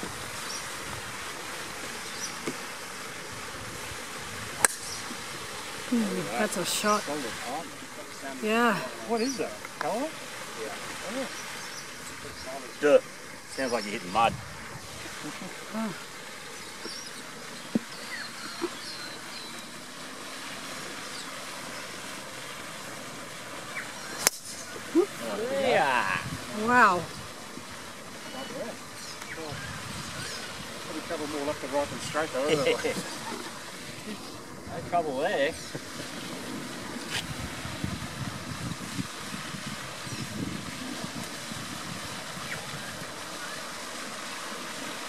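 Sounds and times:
steady background hiss: 0:00.0 - 0:45.0
wind buffeting microphone: 0:14.1 - 0:15.2, 0:24.9 - 0:27.8, 0:29.3 - 0:43.3
faint high bird chirps: 0:17.9 - 0:19.7.

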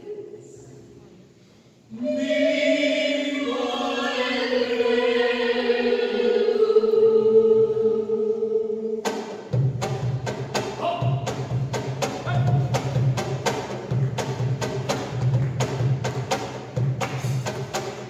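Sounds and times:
choir singing: 0:01.9 - 0:09.5.

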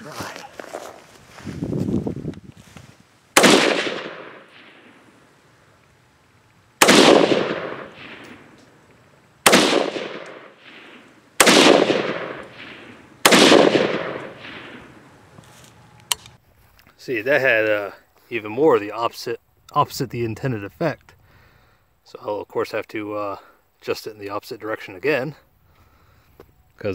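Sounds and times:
rifle shots: 0:03.4 - 0:05.0, 0:06.8 - 0:08.6, 0:09.4 - 0:15.1.

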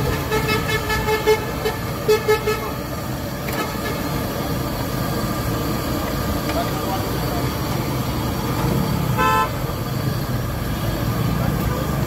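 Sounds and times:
oil sizzling in a wok: 0:00.0 - 0:12.0
vehicle horn short beeps: 0:09.2 - 0:09.6.

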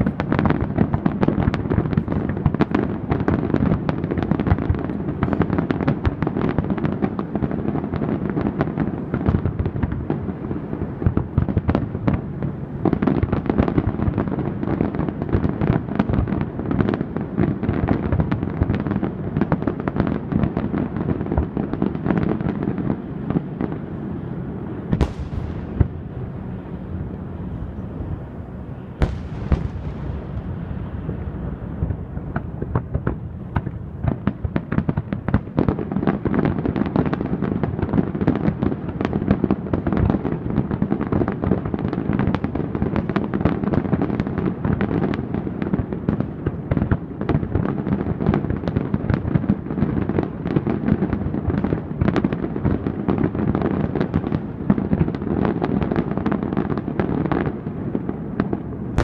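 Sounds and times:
sharp firework cracks: 0:08.4 - 0:26.6, 0:28.8 - 0:41.5
firework shell bursts and booms: 0:24.9 - 0:26.2, 0:29.0 - 0:30.6.

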